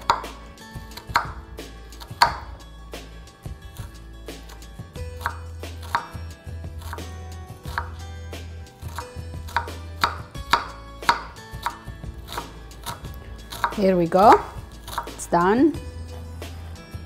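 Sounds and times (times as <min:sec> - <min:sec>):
knife chopping on wooden board: 0:00.0 - 0:02.6, 0:05.2 - 0:06.2, 0:06.8 - 0:08.0, 0:08.8 - 0:15.2.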